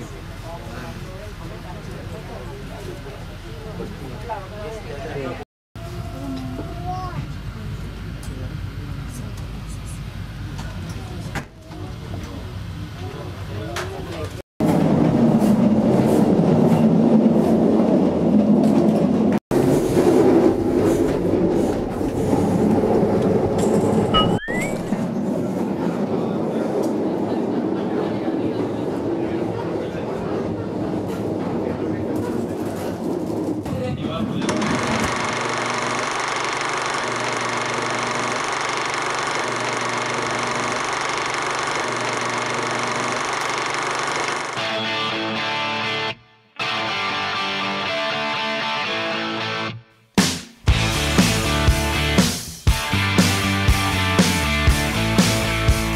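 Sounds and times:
train running gear rumble and rattle: 13.3 - 24.2, 24.8 - 35.0.

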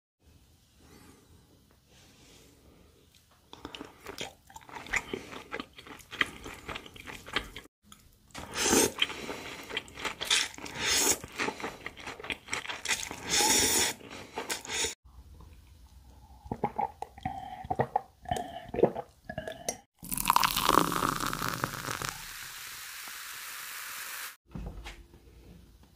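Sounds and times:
wet chewing and crunching: 3.5 - 13.4
noodle slurping: 8.4 - 15.0, 20.0 - 22.4.

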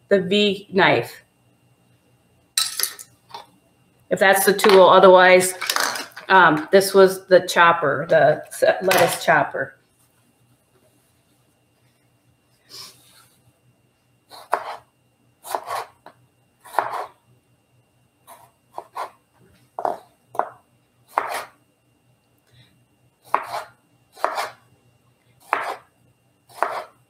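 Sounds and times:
knife slicing tomatoes: 14.3 - 14.8, 15.5 - 16.0, 16.7 - 17.1, 18.3 - 19.2, 21.1 - 21.5, 23.3 - 24.6, 25.4 - 25.9, 26.5 - 27.0.

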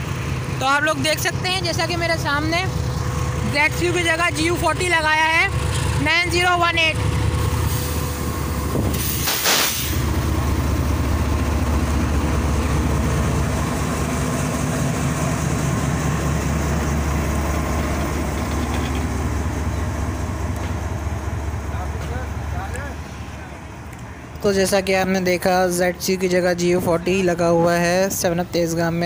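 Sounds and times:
locomotive engine rumbling: 0.0 - 29.0
sharp hiss of air: 8.9 - 10.1.

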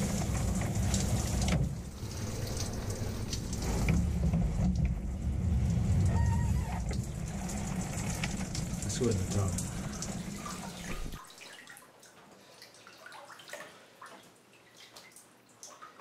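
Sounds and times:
shower spray splashing: 0.0 - 11.2.

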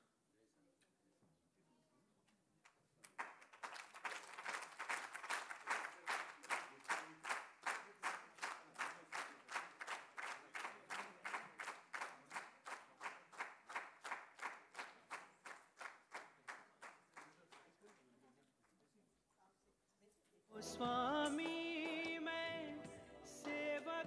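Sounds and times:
audience clapping: 3.0 - 18.1, 20.9 - 24.0.

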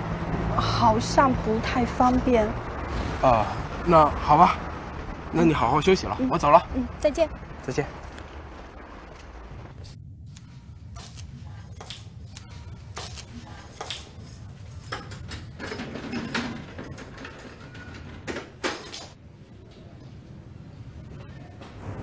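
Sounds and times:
low steady hum: 0.0 - 15.9
footsteps on tiled stairs: 10.9 - 19.2.

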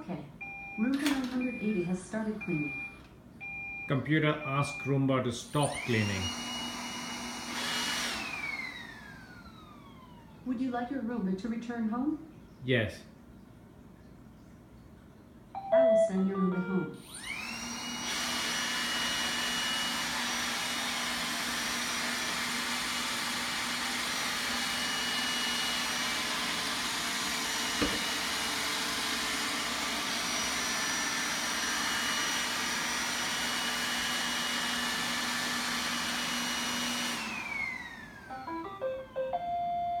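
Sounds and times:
robot vacuum motor whine: 5.6 - 10.4, 17.0 - 40.0
knock: 27.8 - 28.1.

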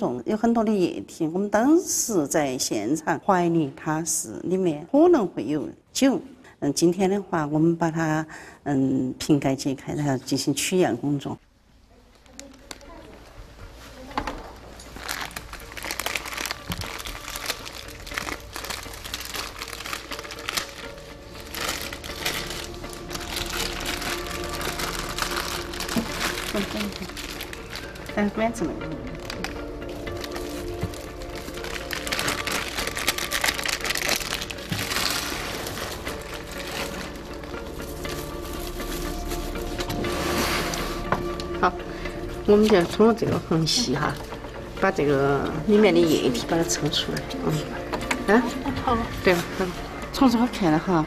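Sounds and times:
background music: 0.0 - 51.0
plastic film crinkling: 11.9 - 41.6.

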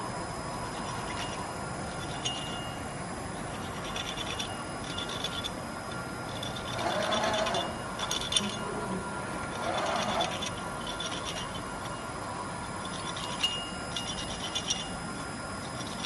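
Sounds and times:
faint whine: 0.0 - 16.0
machine hum: 0.0 - 16.0
tool scraping metal: 3.6 - 12.0
sharp metal clink: 12.9 - 15.0.

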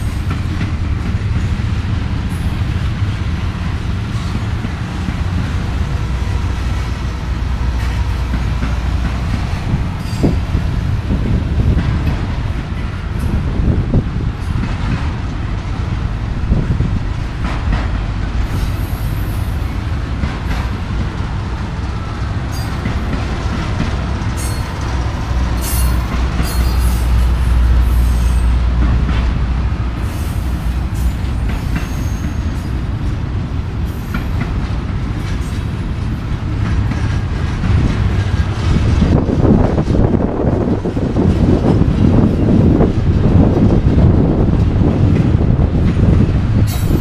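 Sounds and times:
freight train rumbling past: 0.0 - 47.0
high-pitched wheel squeals: 31.8 - 32.6.

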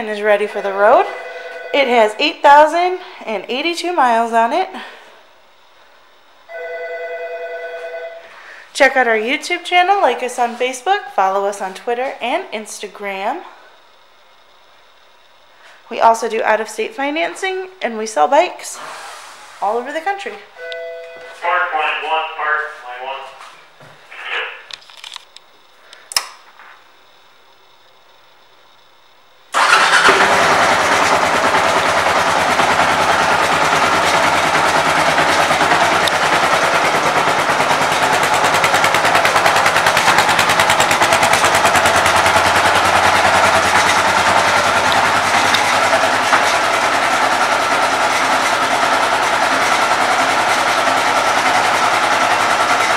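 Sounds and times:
motorcycle engine starting and idling: 0.0 - 5.1, 29.5 - 52.9
sharp click: 24.7 - 26.4.

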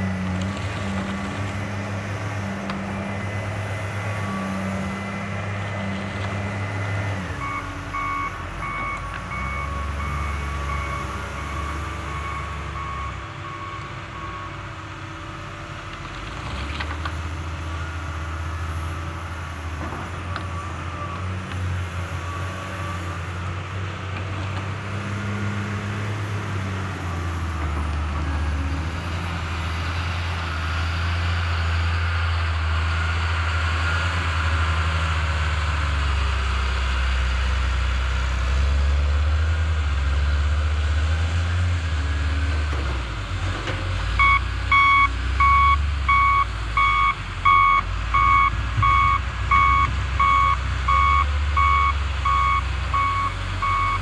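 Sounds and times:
excavator diesel engine running: 0.0 - 54.0
reversing alarm beeping: 6.7 - 14.6, 44.2 - 54.0.

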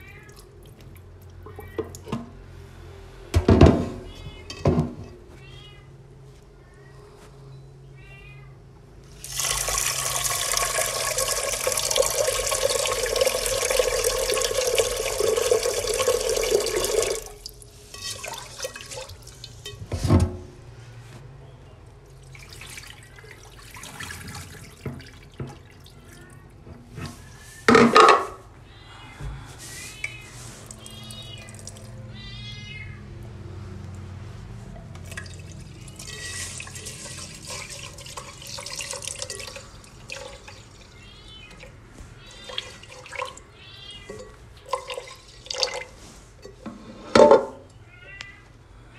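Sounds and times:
tap water running into pot: 9.2 - 20.0, 22.2 - 26.0, 35.0 - 40.9, 42.3 - 43.4, 44.1 - 46.6.

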